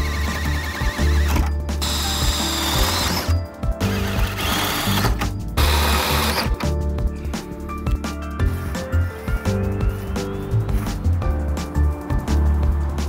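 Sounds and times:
drill cutting through sheet metal: 0.0s - 6.6s.

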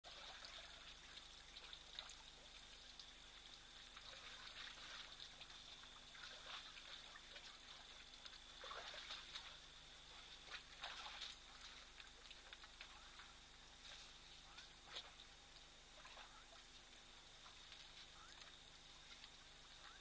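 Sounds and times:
water trickling and splashing: 0.0s - 20.0s
faint high-pitched tone: 15.9s - 17.2s, 17.9s - 20.0s.

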